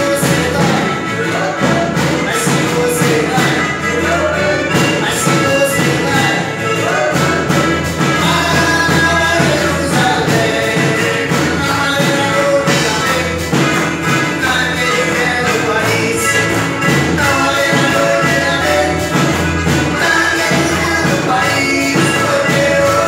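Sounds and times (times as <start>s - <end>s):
drum kit: 0.0s - 23.0s
electric guitar: 0.0s - 23.0s
keyboard: 0.0s - 23.0s
man singing: 0.0s - 23.0s
woman singing: 0.0s - 23.0s.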